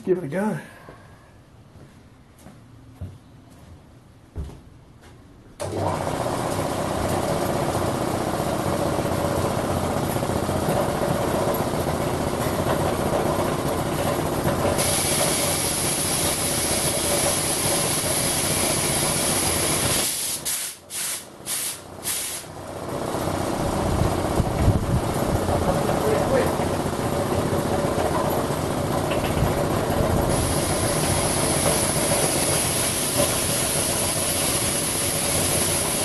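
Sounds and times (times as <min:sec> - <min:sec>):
air compressor running: 0:05.6 - 0:36.0
loud hiss of air: 0:14.8 - 0:22.5, 0:30.3 - 0:36.0.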